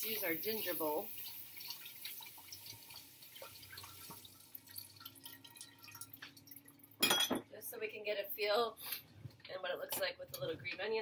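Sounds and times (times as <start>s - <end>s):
glass bowl and kitchenware clicks: 7.0s - 7.5s.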